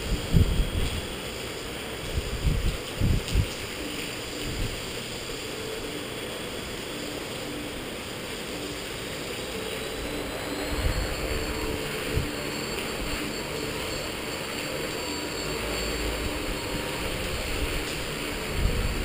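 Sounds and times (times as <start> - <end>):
wind buffeting microphone: 0.0 - 1.1, 2.0 - 4.9, 16.4 - 19.0
rc helicopter rotor hum: 0.0 - 19.0.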